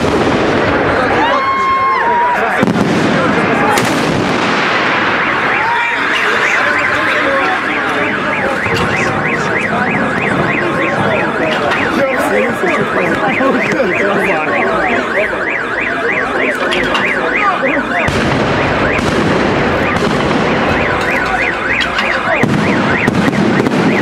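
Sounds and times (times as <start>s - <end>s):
busy background noise: 0.0s - 24.0s
sharp crack: 2.6s - 7.8s, 18.0s - 24.0s
car alarm warbling: 4.4s - 24.0s.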